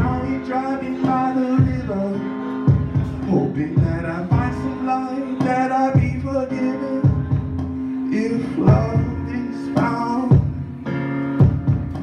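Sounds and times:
low thumping beat: 0.0 - 8.0, 8.6 - 10.8, 11.4 - 12.0
man singing into microphone: 0.0 - 11.0
backing music: 0.0 - 12.0.

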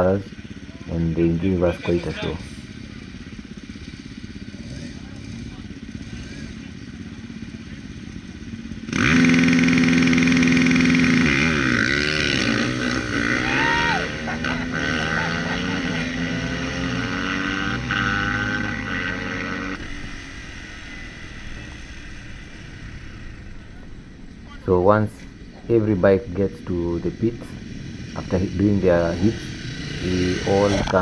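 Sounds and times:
motorcycles revving and accelerating: 0.0 - 31.0.

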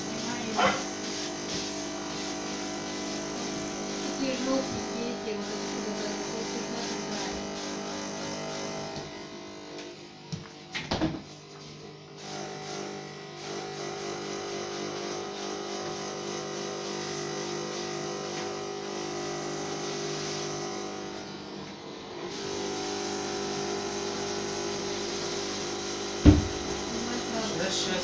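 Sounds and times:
washing vacuum running: 0.0 - 28.0
sharp knock: 26.2 - 26.6.

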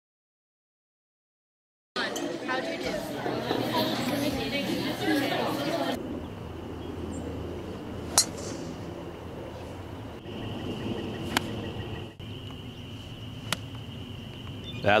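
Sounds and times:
outdoor background noise: 2.0 - 15.0
golf club striking ball: 8.1 - 8.8.

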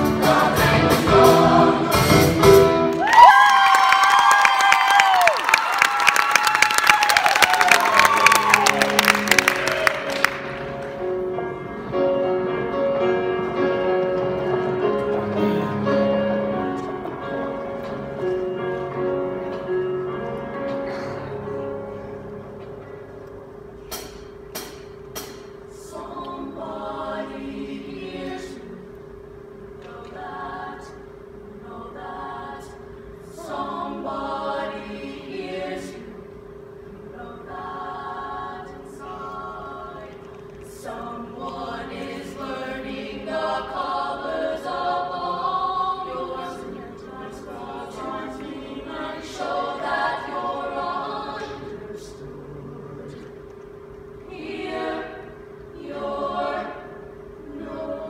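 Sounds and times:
mixed choir singing: 0.0 - 2.9, 25.7 - 29.0, 29.8 - 53.3, 54.2 - 58.0.

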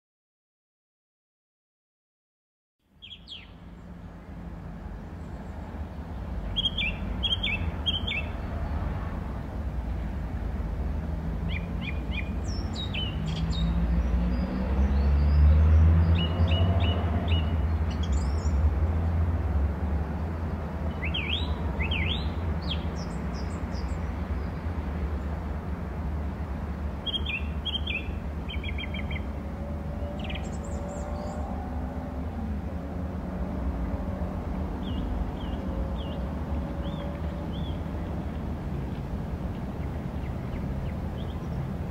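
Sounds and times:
small birds chirping: 2.9 - 4.2, 5.2 - 8.8, 11.5 - 18.6, 20.9 - 24.7, 27.0 - 29.4, 30.0 - 31.5, 34.8 - 41.9
steady low rumble: 37.2 - 41.9.

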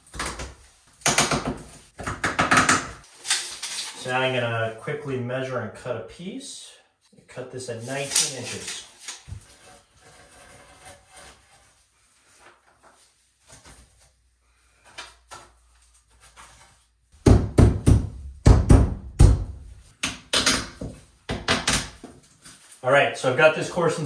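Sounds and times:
loud irregular knocks and thumps: 17.2 - 19.7.

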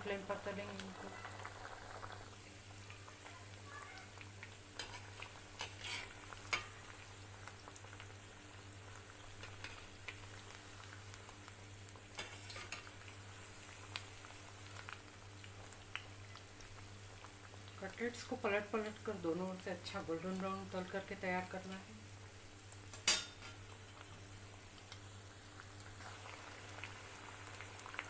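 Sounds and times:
food deep-frying in oil: 0.0 - 28.0
metal spoon scraping pan: 5.6 - 6.7.

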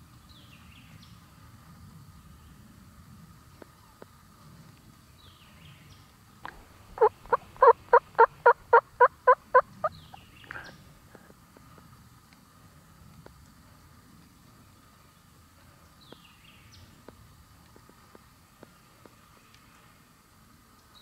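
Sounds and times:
turkey yelps: 7.0 - 10.7.

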